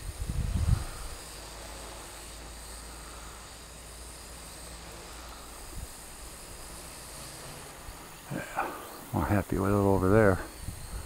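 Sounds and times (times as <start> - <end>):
wind noise on microphone: 0.0 - 2.0, 5.6 - 6.8, 9.4 - 11.0
quadcopter motors whining: 0.0 - 11.0.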